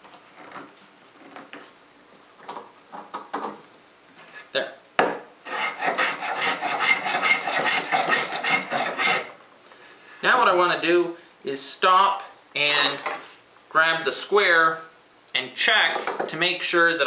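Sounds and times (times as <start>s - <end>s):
hand plane scraping wood: 5.5s - 9.3s.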